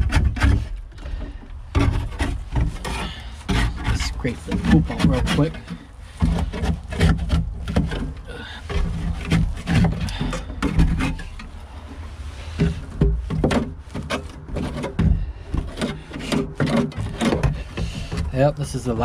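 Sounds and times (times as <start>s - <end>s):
metal scraper scraping wood: 0.0s - 19.0s
scraper knocking against wood: 12.6s - 18.3s.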